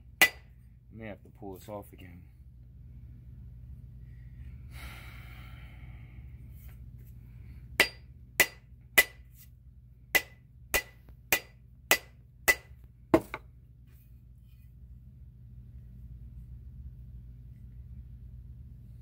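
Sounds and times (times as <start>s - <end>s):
rubber mallet knocking wooden handle: 10.2s - 13.4s.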